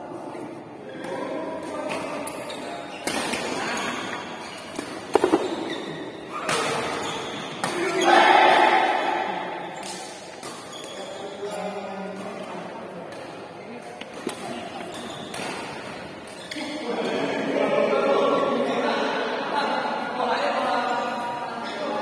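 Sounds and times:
spectators' voices in a hall: 0:00.0 - 0:22.0
ball knocks: 0:05.1 - 0:05.7.

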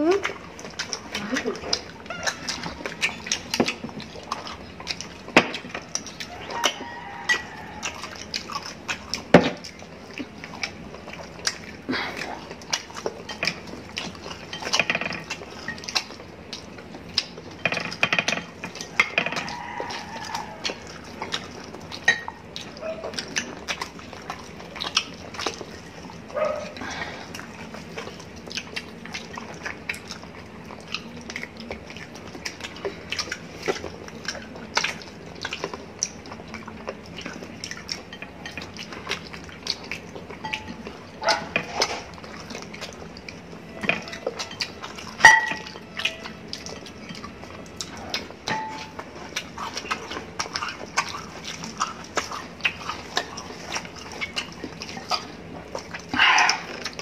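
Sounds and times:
chewing and lip-smacking: 0:00.0 - 0:57.0
glass bowls clinking: 0:06.6 - 0:08.1, 0:14.4 - 0:15.9, 0:17.6 - 0:20.6, 0:22.0 - 0:22.4, 0:40.4 - 0:41.7, 0:43.7 - 0:47.4, 0:48.5 - 0:49.0.

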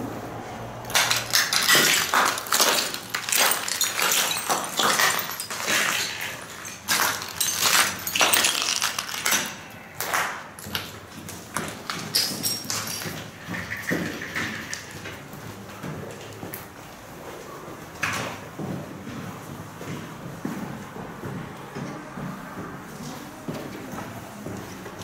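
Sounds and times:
loose fragments clinking: 0:00.9 - 0:09.6
footsteps crunching on rubble: 0:00.9 - 0:17.3.

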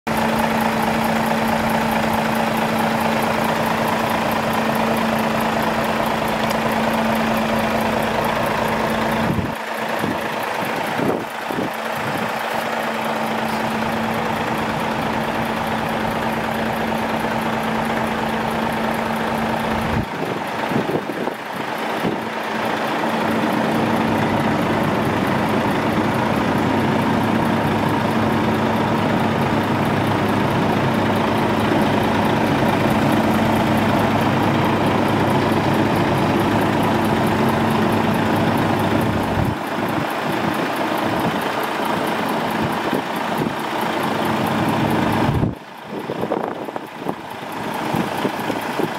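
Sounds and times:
truck diesel engine idling: 0:00.0 - 0:48.9.

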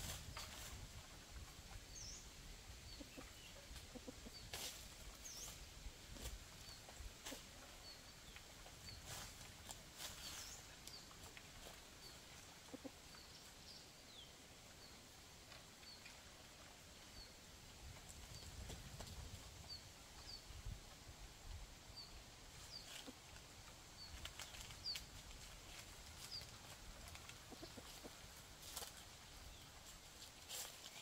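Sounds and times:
dry leaves rustling: 0:00.0 - 0:01.7, 0:03.7 - 0:12.9, 0:22.5 - 0:31.0
small birds chirping: 0:00.1 - 0:21.1, 0:21.9 - 0:31.0.

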